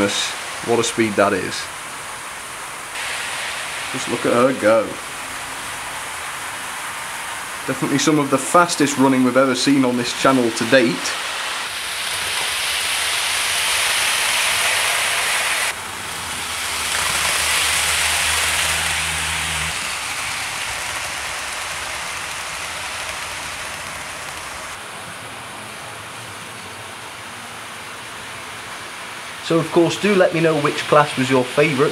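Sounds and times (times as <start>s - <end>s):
model trains rattling on track: 3.0s - 24.8s, 29.4s - 31.9s.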